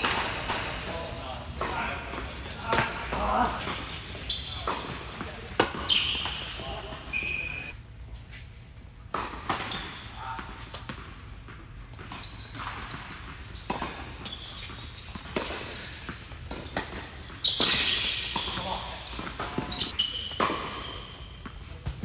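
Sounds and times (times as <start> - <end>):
tennis ball bouncing on hard court: 0.0 - 0.8, 3.7 - 6.6, 9.1 - 22.0.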